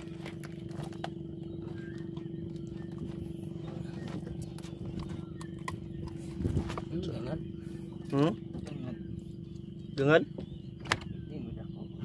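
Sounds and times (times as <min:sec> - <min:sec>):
small boat engine chugging: 0:00.0 - 0:12.0.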